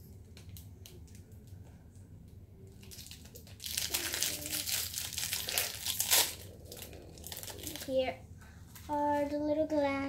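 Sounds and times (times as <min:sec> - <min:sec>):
plastic wrapping crinkling and tearing: 0:02.7 - 0:08.2.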